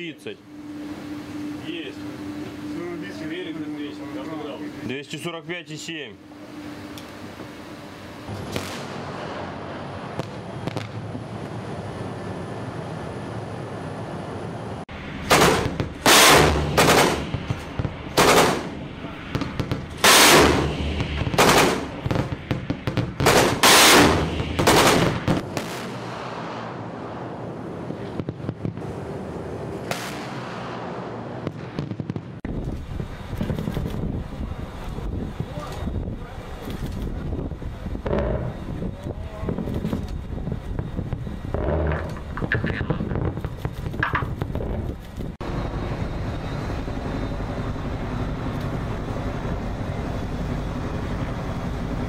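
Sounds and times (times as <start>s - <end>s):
ship noise: 0.0s - 28.2s, 32.4s - 52.0s
guns firing: 8.3s - 11.0s, 15.2s - 26.8s.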